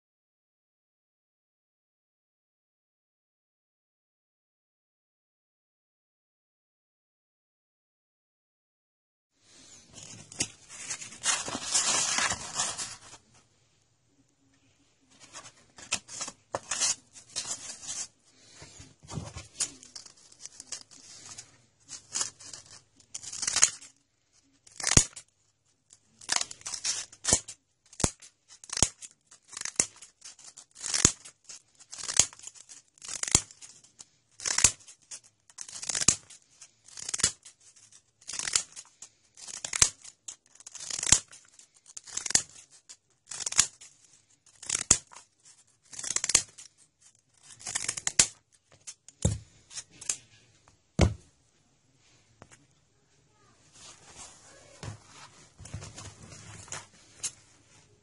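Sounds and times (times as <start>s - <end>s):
sandpaper rustling and crinkling: 10.0s - 13.2s
scissors snipping sandpaper: 26.2s - 31.3s, 34.4s - 37.5s, 38.3s - 42.7s, 45.9s - 46.7s.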